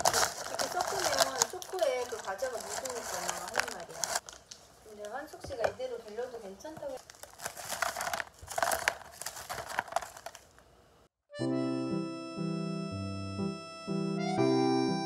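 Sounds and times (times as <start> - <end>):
foil snack bag crinkling: 0.0 - 5.2, 6.0 - 10.7
snacks tipped into plastic tub: 6.8 - 10.6
background music of held chords: 11.3 - 15.0.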